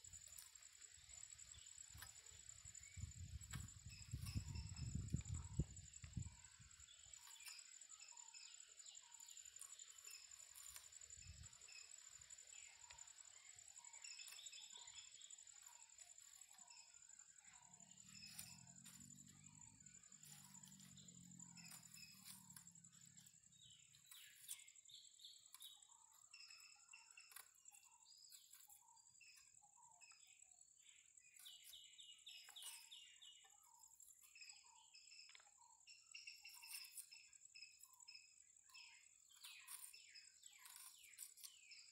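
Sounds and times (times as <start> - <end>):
bird chirps: 0.0 - 41.9
high-pitched insect drone: 9.4 - 24.5.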